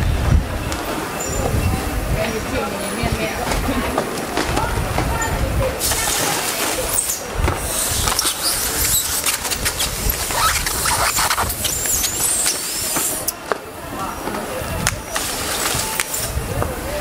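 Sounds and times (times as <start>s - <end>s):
high squeaks: 8.2s - 13.3s.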